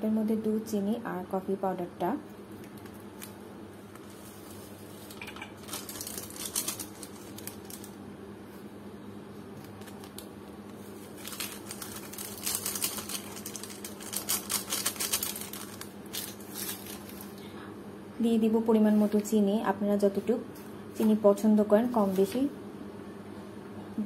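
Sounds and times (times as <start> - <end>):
foil sachets crinkling and rustling: 2.7 - 8.0, 9.6 - 17.4.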